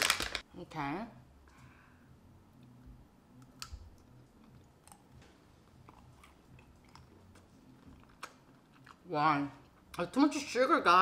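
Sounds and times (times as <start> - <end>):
faint chewing: 3.5 - 9.9.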